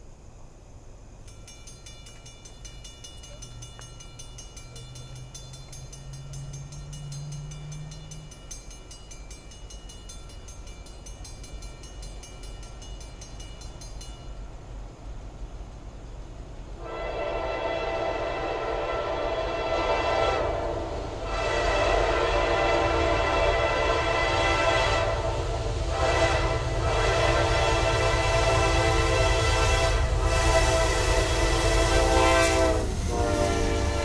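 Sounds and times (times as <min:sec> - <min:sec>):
diesel locomotive rumble: 0:00.0 - 0:34.0
high pulsing ringing: 0:01.1 - 0:16.8, 0:19.2 - 0:30.2
locomotive air horn: 0:16.8 - 0:34.0.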